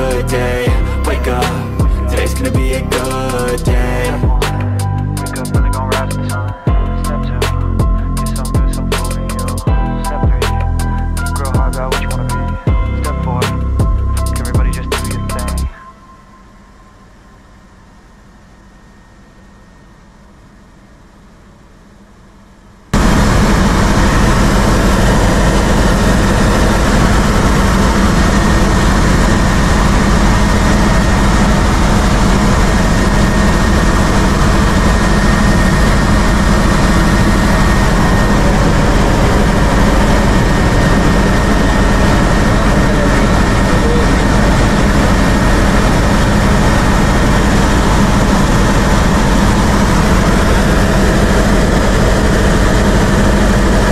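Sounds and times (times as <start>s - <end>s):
helicopter engine and rotor drone: 0.0s - 53.9s
faint high whine: 11.1s - 53.9s.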